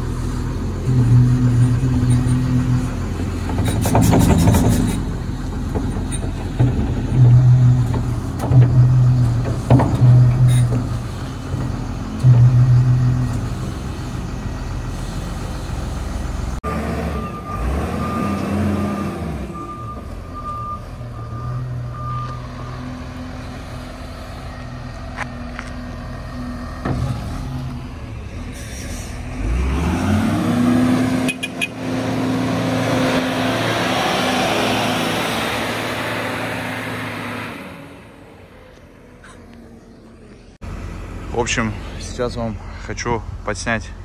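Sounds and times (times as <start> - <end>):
loader engine running: 0.0 - 44.0
reversing alarm beeping: 16.7 - 23.0.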